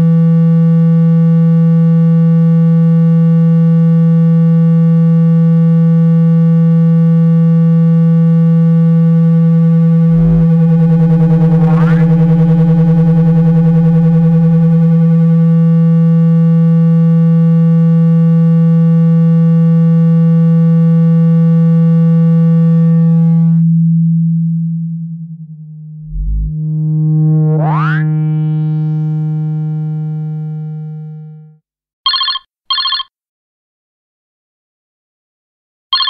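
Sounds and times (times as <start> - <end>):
synthesized low tone: 8.1 - 31.6
rising tone sweep: 9.2 - 16.4, 22.2 - 31.6.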